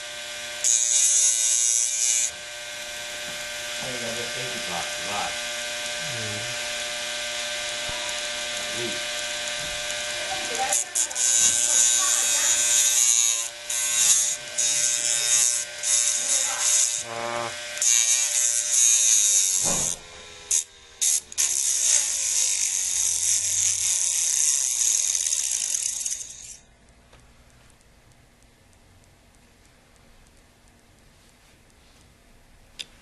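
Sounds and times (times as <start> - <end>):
spindle motor hum: 0.0 - 18.1.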